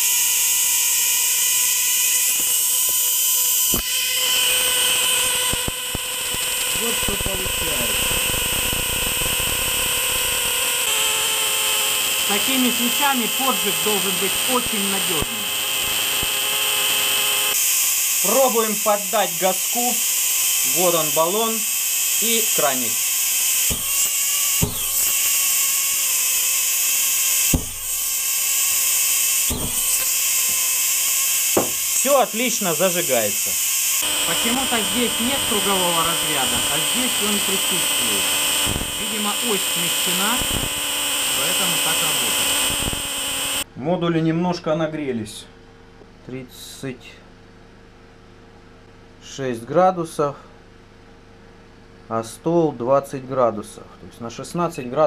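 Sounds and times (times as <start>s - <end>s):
igniter plugs buzzing: 0.0s - 43.7s
gas igniting with a pop: 3.7s - 4.0s, 23.6s - 25.3s, 27.4s - 28.0s, 29.4s - 30.6s, 31.5s - 31.9s, 38.6s - 39.0s, 42.6s - 43.0s
short thump: 27.5s - 27.8s, 31.6s - 31.8s.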